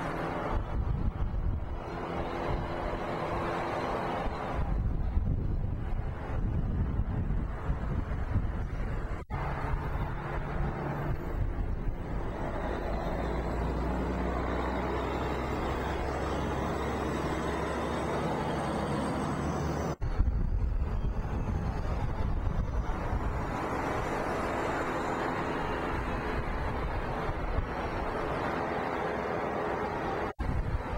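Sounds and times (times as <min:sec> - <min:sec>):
road traffic rumble: 0:00.0 - 0:30.9.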